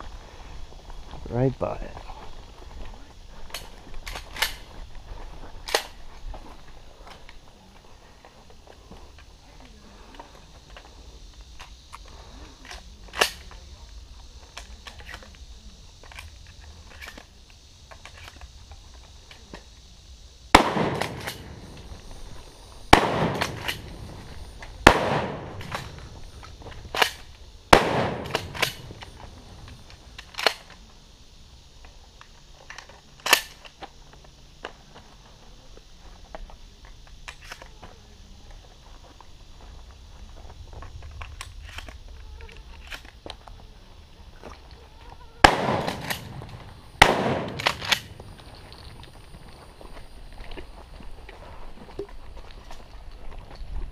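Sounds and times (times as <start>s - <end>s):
shotgun booms with echo: 20.5s - 21.6s, 22.9s - 23.9s, 24.8s - 25.9s, 27.7s - 28.8s, 45.4s - 46.4s, 47.0s - 48.1s
sharp quieter cracks: 22.9s - 24.1s, 45.4s - 48.2s.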